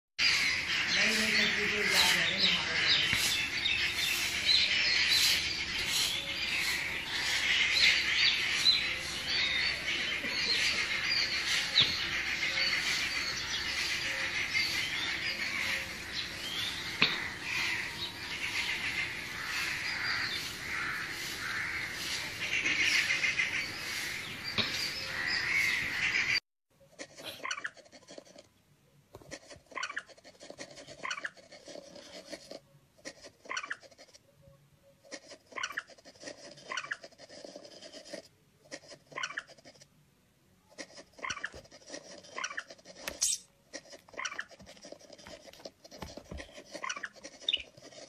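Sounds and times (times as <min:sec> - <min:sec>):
birds chirping: 0:00.2 - 0:26.4, 0:41.0 - 0:48.0.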